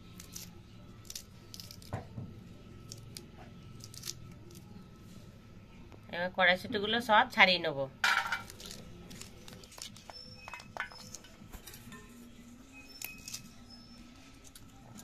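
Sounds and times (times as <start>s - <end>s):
pea pods snapping open: 0.2s - 1.9s, 2.9s - 4.6s, 8.4s - 10.1s.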